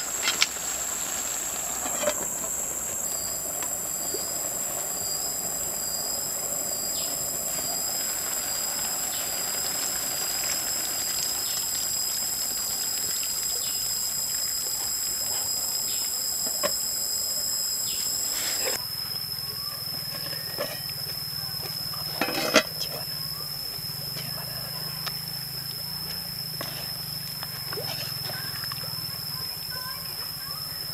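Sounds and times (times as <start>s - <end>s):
soup simmering and crackling: 0.0s - 18.8s
insects droning: 0.0s - 30.9s.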